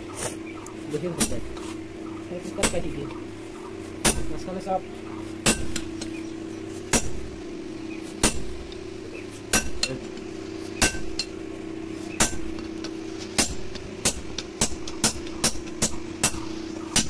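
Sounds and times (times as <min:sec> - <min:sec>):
hammer striking hot steel: 0:01.1 - 0:01.6, 0:02.6 - 0:03.0, 0:04.0 - 0:04.5, 0:05.4 - 0:06.2, 0:06.8 - 0:07.3, 0:08.2 - 0:08.8, 0:09.4 - 0:11.4, 0:12.1 - 0:17.0.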